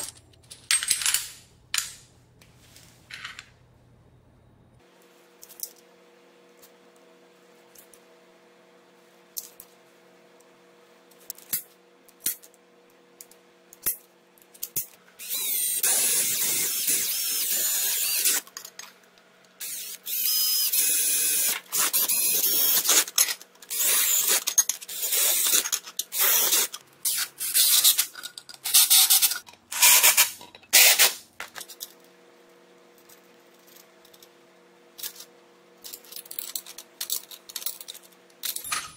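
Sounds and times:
cordless drill boring through metal: 15.2s - 18.4s, 19.6s - 23.0s, 23.7s - 25.5s.

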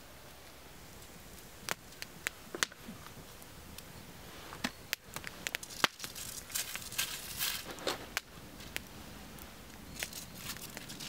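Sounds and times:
small items clicking on rock: 4.6s - 8.8s, 9.9s - 11.0s.

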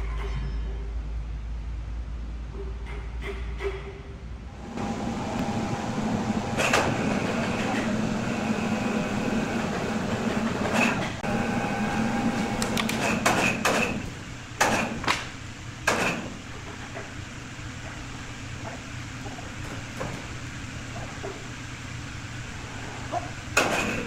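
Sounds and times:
woodworking saw humming: 4.5s - 13.3s.

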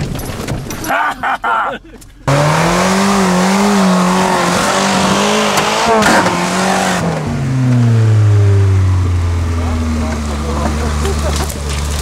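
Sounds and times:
off-road engine revving: 2.2s - 12.0s.

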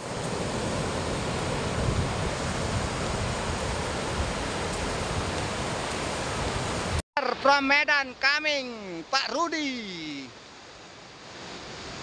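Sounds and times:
wind buffeting microphone: 0.0s - 7.0s
surf breaking on beach: 0.0s - 12.0s.

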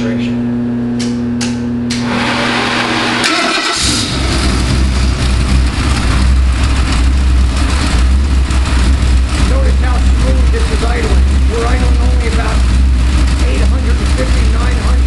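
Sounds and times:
engine low rumble: 0.0s - 15.0s
starter motor cranking: 2.8s - 4.6s.

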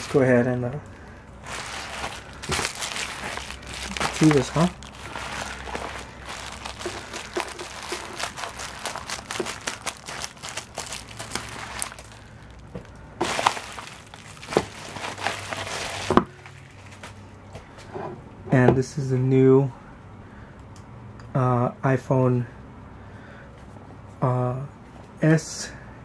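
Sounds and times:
package rustling: 0.0s - 0.3s, 1.4s - 17.2s
plastic crinkling: 0.0s - 0.5s, 1.4s - 17.2s.

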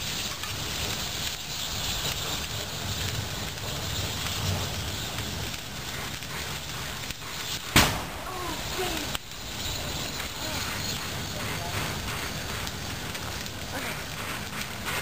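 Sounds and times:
fire crackling: 0.0s - 15.0s
fire rumbling and hissing: 0.0s - 15.0s
tire bursting bang: 7.6s - 8.3s.

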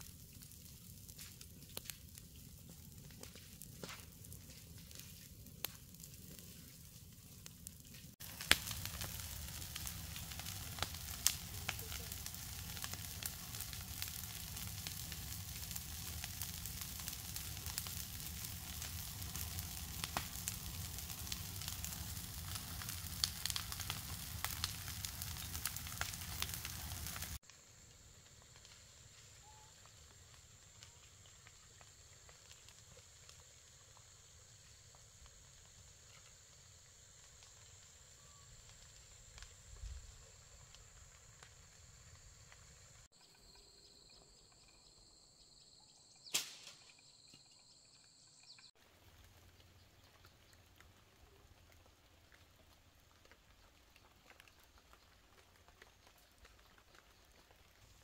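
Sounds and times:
food sizzling in frying: 0.0s - 27.5s
sharp crackles and pops: 0.0s - 44.8s, 46.2s - 47.5s, 48.1s - 58.0s.

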